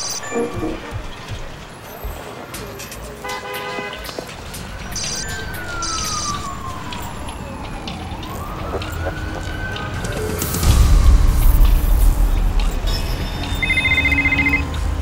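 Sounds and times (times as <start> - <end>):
siren wailing: 0.0 - 1.4, 4.8 - 15.0
city street traffic: 0.0 - 15.0
car horn: 0.2 - 1.3, 3.2 - 4.3.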